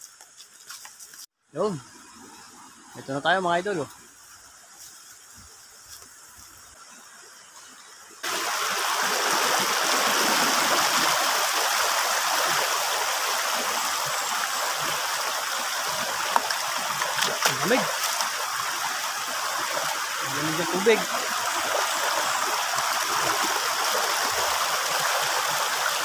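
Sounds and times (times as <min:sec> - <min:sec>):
river rushing over stones: 0:08.2 - 0:26.0.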